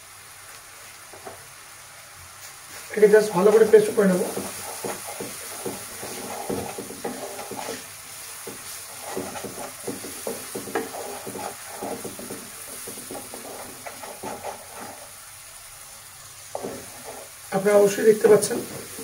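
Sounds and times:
low sizzle of frying: 0:00.0 - 0:19.0
utensil scraping a pan: 0:03.1 - 0:15.2, 0:16.5 - 0:17.5.

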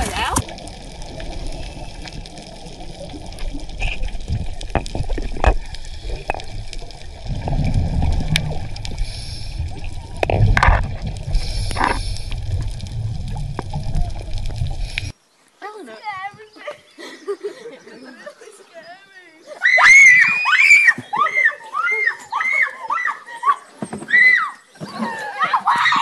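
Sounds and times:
bursts of bubbles: 0:00.0 - 0:15.1
underwater gurgling and bubbling: 0:00.0 - 0:15.1.

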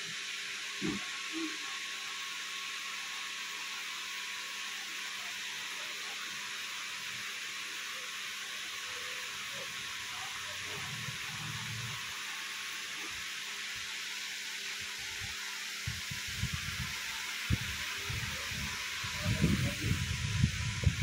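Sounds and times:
steady hiss: 0:06.1 - 0:21.0.

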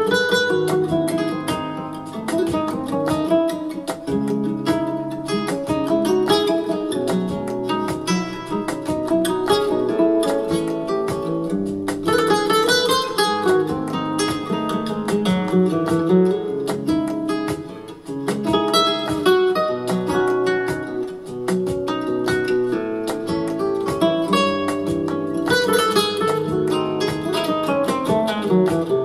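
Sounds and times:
acoustic guitar music: 0:00.0 - 0:29.0.

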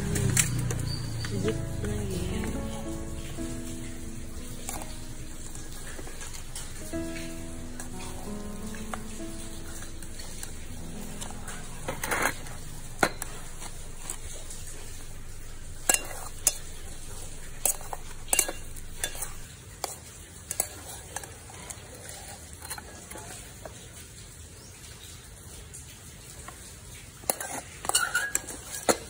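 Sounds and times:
steady hiss: 0:01.5 - 0:19.6
metal spoon scraping steel bowl: 0:15.6 - 0:19.5, 0:27.3 - 0:29.0.

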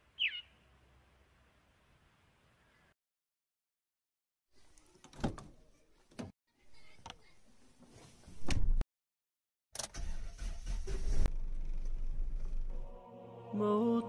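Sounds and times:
car engine starting: 0:09.8 - 0:13.0.

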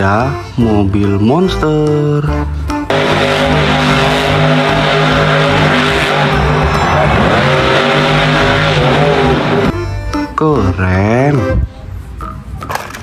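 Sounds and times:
truck engine revving high: 0:02.9 - 0:09.8.

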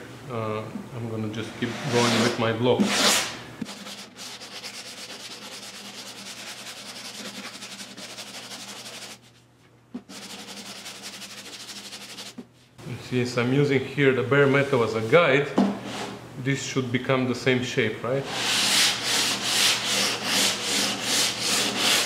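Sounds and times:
sanding block rasping on metal: 0:01.8 - 0:09.2, 0:10.1 - 0:12.4, 0:18.3 - 0:22.0.

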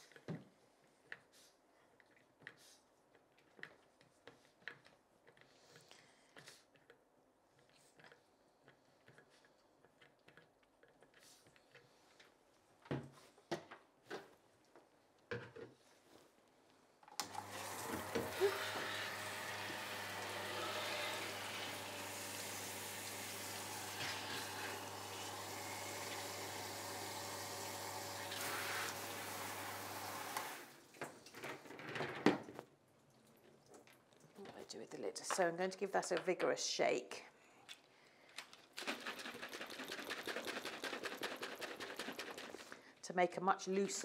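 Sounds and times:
shower water running: 0:17.3 - 0:31.0.

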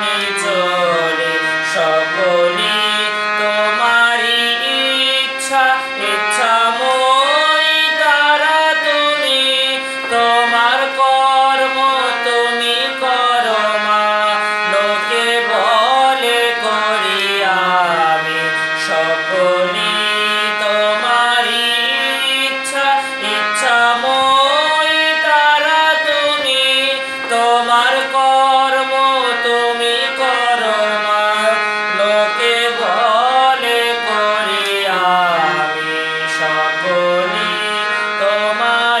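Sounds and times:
harmonium drone and chords: 0:00.0 - 0:39.0
man singing: 0:00.0 - 0:39.0.

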